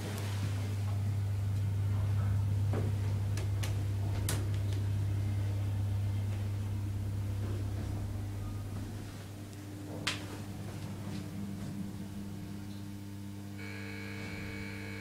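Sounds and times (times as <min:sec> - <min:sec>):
lift machinery humming: 0:00.0 - 0:15.0.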